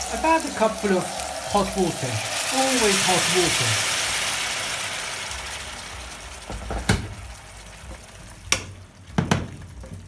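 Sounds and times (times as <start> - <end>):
water sizzling in hot pan: 0.0 - 10.0
wooden spoon knocking pan: 6.5 - 7.2, 7.9 - 10.0.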